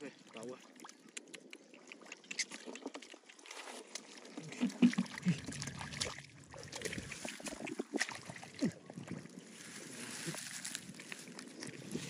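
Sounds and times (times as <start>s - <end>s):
water dripping and splashing: 0.2s - 9.4s.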